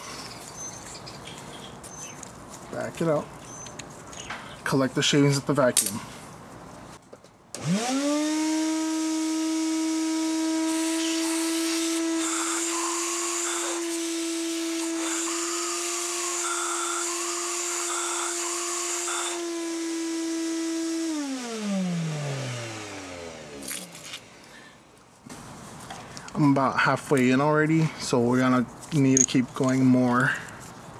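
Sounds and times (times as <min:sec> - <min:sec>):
shop vacuum humming: 0:07.6 - 0:24.4
hose sucking metal shavings: 0:10.4 - 0:20.3.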